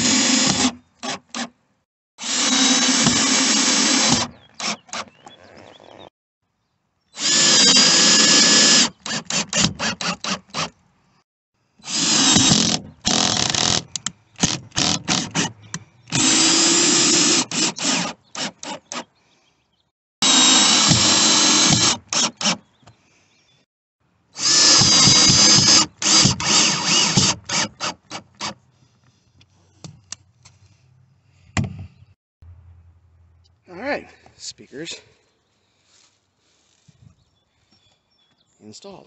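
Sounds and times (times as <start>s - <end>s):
cordless drill driving screws: 0.0s - 1.5s, 2.2s - 5.1s, 7.2s - 10.8s, 11.8s - 19.0s, 20.2s - 22.6s, 24.4s - 28.6s.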